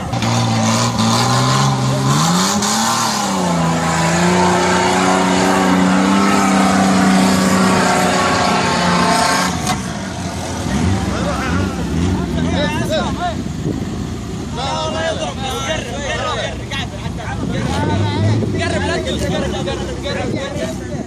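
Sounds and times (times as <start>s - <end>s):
engine revving under load: 0.0s - 14.2s.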